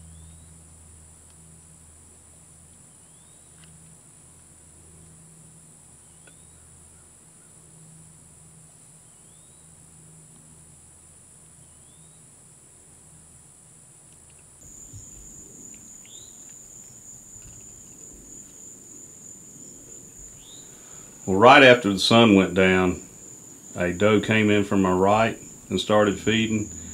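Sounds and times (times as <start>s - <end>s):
crickets and insects chirping: 0.0s - 26.9s
low rumbles: 14.6s - 26.9s.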